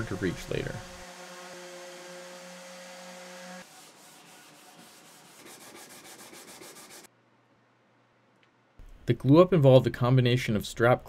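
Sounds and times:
orbit sander motor hum: 0:00.0 - 0:03.6
scratchy sanding rub: 0:01.7 - 0:07.1.

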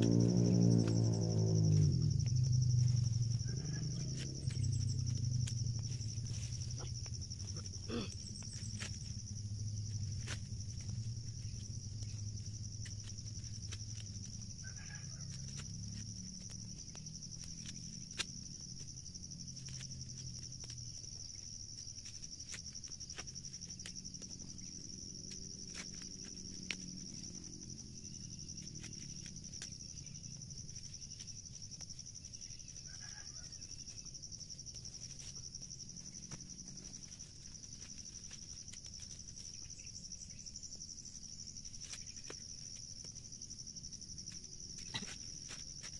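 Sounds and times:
low rumble: 0:00.0 - 0:14.6
insects droning: 0:00.0 - 0:45.9.

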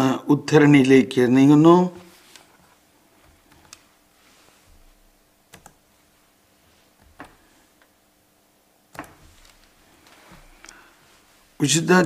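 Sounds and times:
sharp clicks at a desk: 0:08.9 - 0:09.2.

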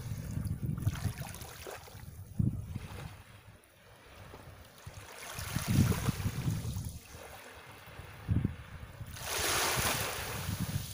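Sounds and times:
small waves lapping: 0:00.0 - 0:10.9
wind buffeting the microphone: 0:00.0 - 0:10.9
wave washing up the beach: 0:04.0 - 0:10.9.

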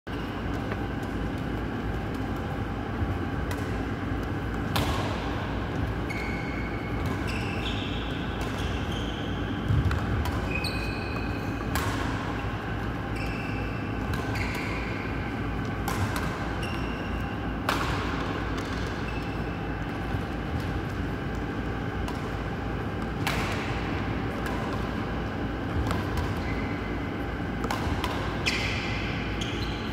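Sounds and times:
low hall hum: 0:00.1 - 0:29.9
racket hitting shuttlecock: 0:03.4 - 0:03.9, 0:04.5 - 0:05.9, 0:08.2 - 0:08.8, 0:09.6 - 0:10.6, 0:11.6 - 0:12.4, 0:15.8 - 0:17.0, 0:17.6 - 0:21.4, 0:22.0 - 0:25.1, 0:25.7 - 0:26.5, 0:27.4 - 0:29.9
shoes squeaking on court: 0:05.6 - 0:17.5, 0:18.2 - 0:23.6, 0:24.4 - 0:29.9.

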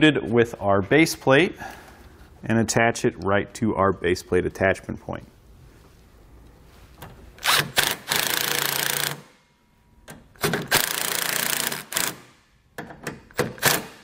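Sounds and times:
impact driver driving screws: 0:07.4 - 0:09.3, 0:10.4 - 0:12.4, 0:13.1 - 0:14.0.

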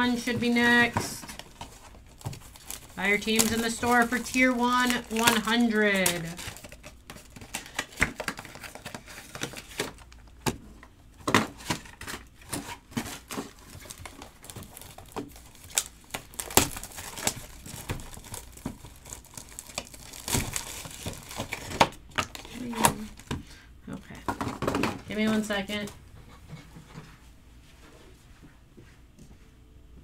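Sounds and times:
plastic shrink wrap crinkling: 0:00.0 - 0:10.4, 0:11.6 - 0:23.4.

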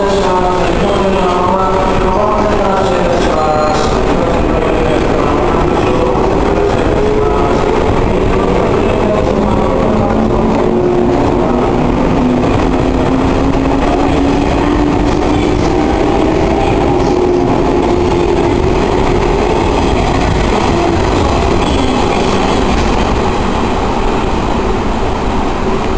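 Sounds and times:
electric train rumbling: 0:00.0 - 0:25.9.

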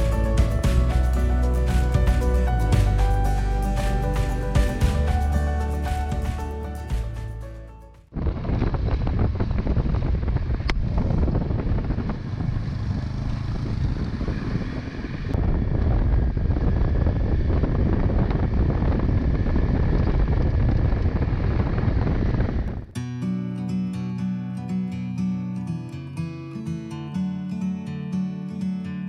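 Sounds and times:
wind buffeting microphone: 0:08.1 - 0:23.0
motorcycle engine: 0:08.2 - 0:22.9.

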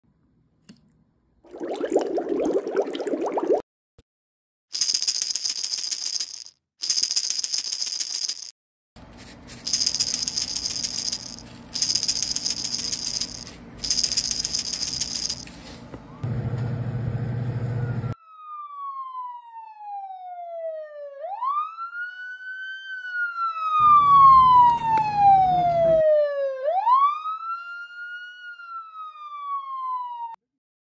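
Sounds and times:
siren wailing: 0:17.8 - 0:30.4.

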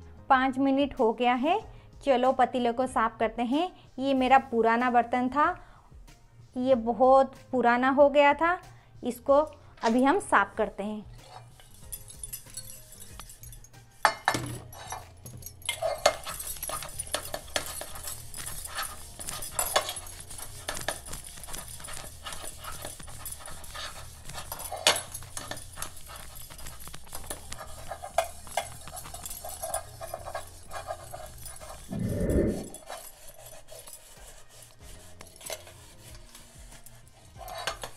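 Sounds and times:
metal knocks against a pot: 0:14.1 - 0:14.8
scouring pad scrubbing a pot: 0:15.7 - 0:37.9.

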